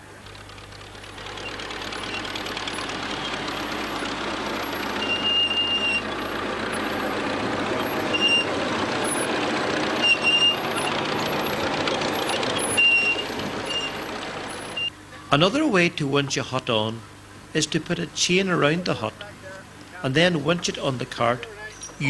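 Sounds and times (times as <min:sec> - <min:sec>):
tractor engine running: 0:00.0 - 0:14.9
high-pitched squeaks: 0:01.3 - 0:14.9.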